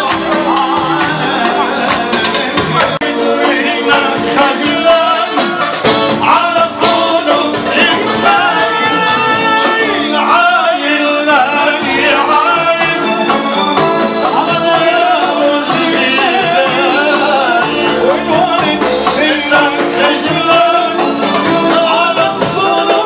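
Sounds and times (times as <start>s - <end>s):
drum kit: 0.0s - 23.0s
hand drums: 0.0s - 23.0s
person singing: 0.0s - 23.0s.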